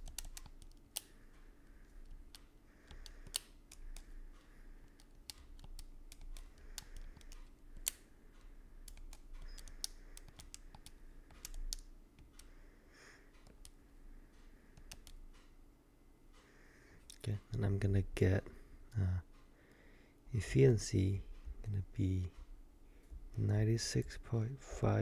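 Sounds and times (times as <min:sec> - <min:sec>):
calculator keys clicking: 0:00.0 - 0:01.1, 0:04.9 - 0:08.0, 0:08.8 - 0:12.5
faint steady hum: 0:00.0 - 0:25.0.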